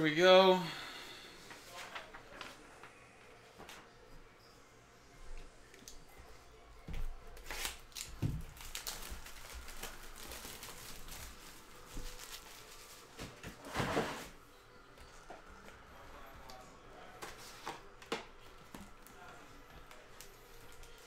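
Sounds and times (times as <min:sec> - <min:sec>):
plastic wrap crinkling: 0:07.4 - 0:13.6.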